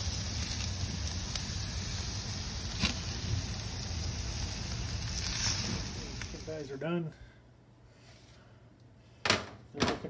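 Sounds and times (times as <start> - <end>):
chicken sizzling on grill: 0.0 - 6.8
sharp pops: 2.6 - 3.1.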